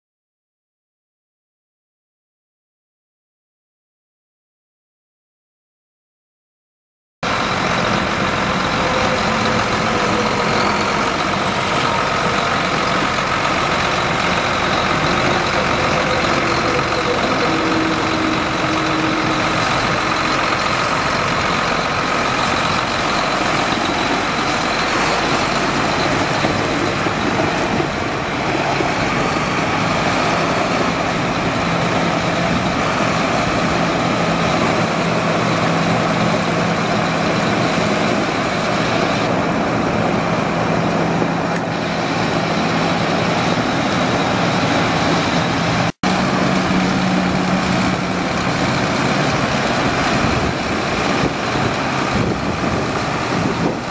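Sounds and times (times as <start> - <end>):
tractor diesel engine running: 7.2 - 53.9.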